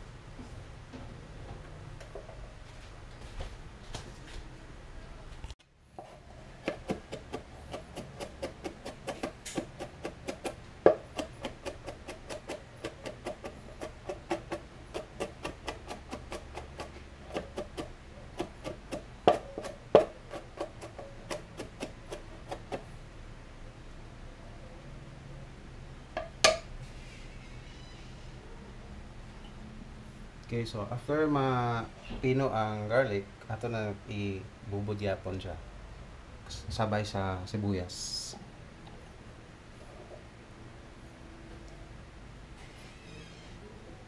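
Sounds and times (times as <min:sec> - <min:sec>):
knife chopping on cutting board: 0:06.0 - 0:22.8.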